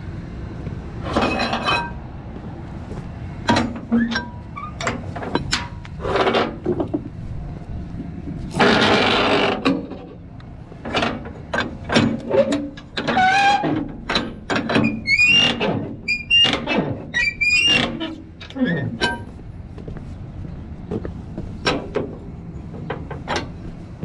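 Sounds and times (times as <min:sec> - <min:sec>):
winch and strap creaking: 0:02.9 - 0:07.2, 0:08.2 - 0:19.9.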